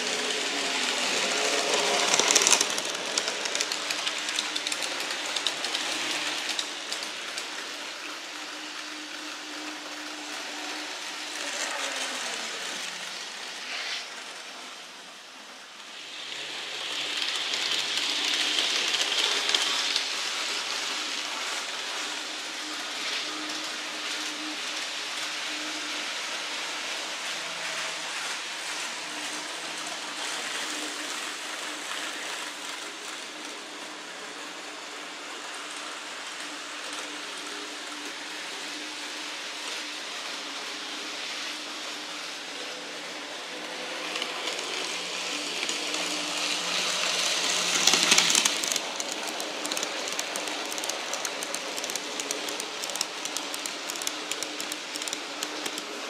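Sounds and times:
model trains rumbling on track: 0:00.0 - 0:15.0, 0:43.4 - 0:56.0
wheels clicking over rail joints: 0:00.1 - 0:07.5, 0:47.4 - 0:56.0.

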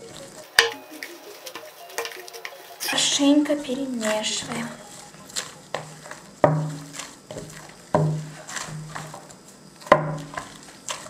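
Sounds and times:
dough squishing: 0:02.8 - 0:11.0.

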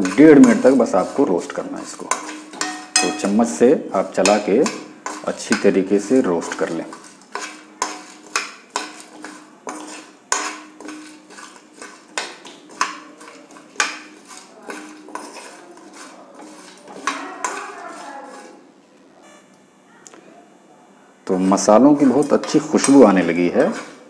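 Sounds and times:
spices rattling and scraping: 0:00.0 - 0:18.7, 0:21.3 - 0:24.0
spoon clinking on metal pan: 0:02.0 - 0:03.6, 0:04.2 - 0:18.0.

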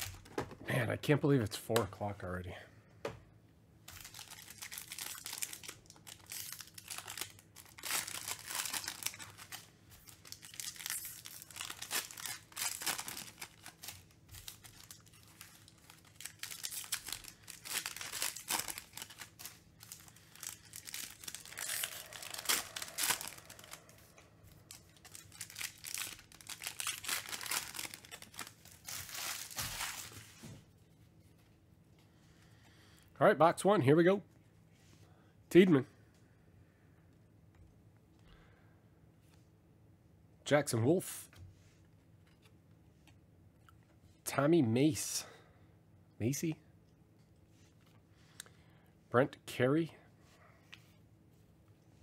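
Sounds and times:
foil wrapper tearing and crinkling: 0:03.9 - 0:23.9, 0:24.6 - 0:30.2.

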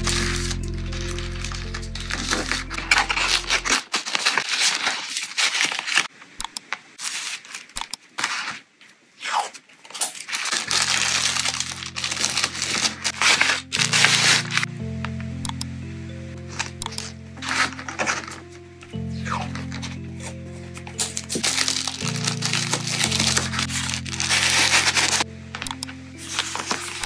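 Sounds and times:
soft background music: 0:00.0 - 0:03.8, 0:10.6 - 0:27.0
tissue paper crinkling: 0:00.0 - 0:06.1, 0:09.9 - 0:14.7, 0:17.4 - 0:18.4, 0:19.2 - 0:25.2, 0:26.2 - 0:27.0.

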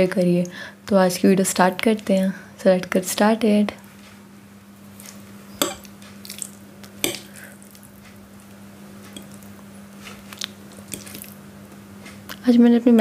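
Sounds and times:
faint steady hum: 0:00.0 - 0:13.0
fork stirring soft noodles: 0:04.9 - 0:08.2, 0:09.0 - 0:11.4
fork clinking on glass plate: 0:05.6 - 0:05.9.

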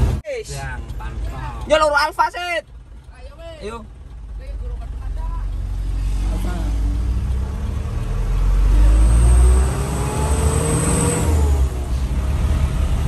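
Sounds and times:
diesel truck engine rumbling: 0:00.0 - 0:13.0.

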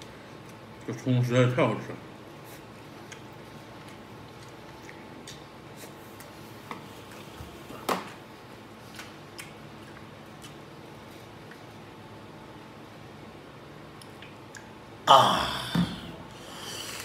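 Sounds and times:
person chewing: 0:02.5 - 0:07.7, 0:08.9 - 0:11.8, 0:14.0 - 0:14.7
mouth clicks and smacks: 0:09.0 - 0:10.6, 0:14.0 - 0:14.8.

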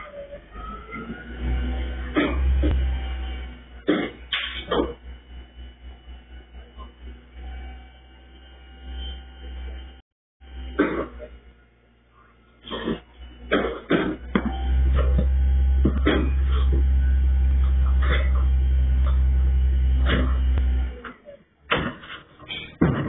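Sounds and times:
garbage truck engine drone: 0:00.0 - 0:23.0
bangs and thumps of waste: 0:21.7 - 0:23.0.

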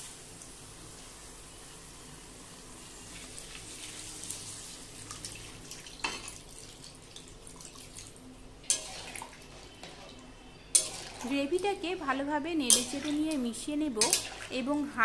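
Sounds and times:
water splashing and hissing in pan: 0:03.0 - 0:08.1, 0:08.7 - 0:10.2, 0:14.0 - 0:14.7
metal spatula clanking on pan: 0:08.7 - 0:09.2, 0:10.7 - 0:11.3, 0:12.6 - 0:13.2, 0:14.0 - 0:14.5.

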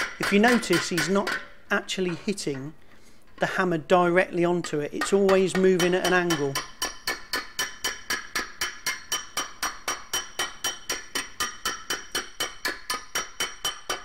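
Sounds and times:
hammer striking sheet metal: 0:00.0 - 0:01.5.

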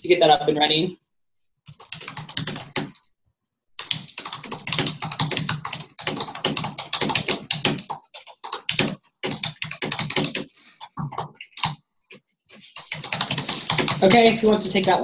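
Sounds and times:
fast typing on a keyboard: 0:01.7 - 0:03.1, 0:03.8 - 0:11.8, 0:12.5 - 0:15.0.

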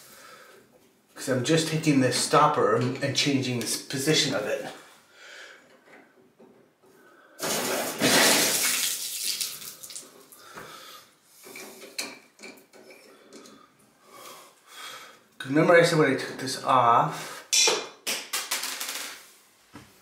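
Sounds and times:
faucet water gushing: 0:07.5 - 0:10.1.

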